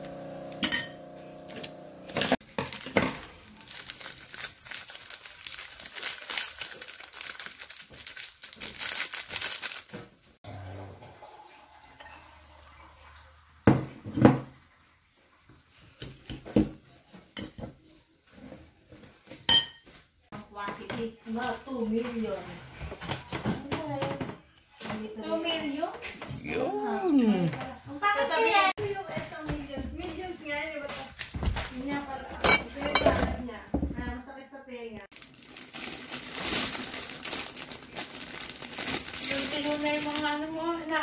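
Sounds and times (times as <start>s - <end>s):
metal fork clinking on bowl: 0.6s - 1.0s
plastic sachets crinkling and tearing: 2.4s - 10.4s, 35.1s - 41.0s.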